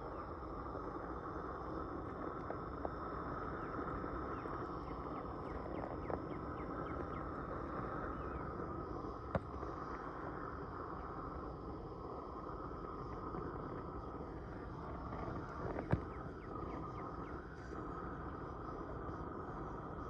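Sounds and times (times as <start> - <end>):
faint ticks: 0.1 - 11.2
torch flame rushing: 0.3 - 20.0.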